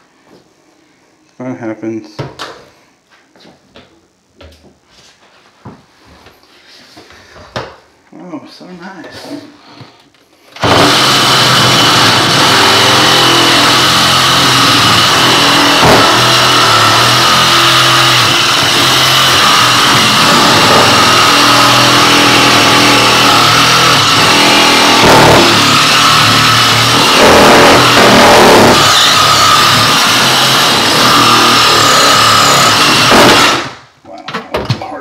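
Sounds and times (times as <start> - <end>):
reciprocating saw cutting pipe: 10.6 - 33.8.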